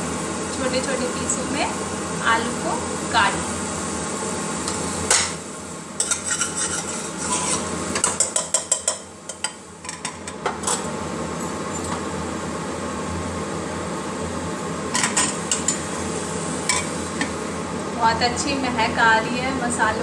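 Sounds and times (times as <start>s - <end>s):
steady background hum: 0.0s - 20.0s
metal spoon scraping a pot: 6.0s - 8.5s.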